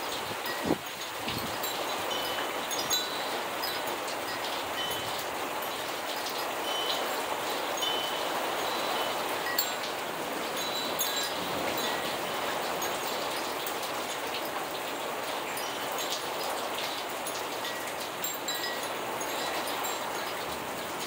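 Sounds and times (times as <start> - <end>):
steady rainfall: 0.0 - 21.0
high-pitched pings and tinkles: 7.8 - 9.8, 10.6 - 12.2, 17.6 - 20.3.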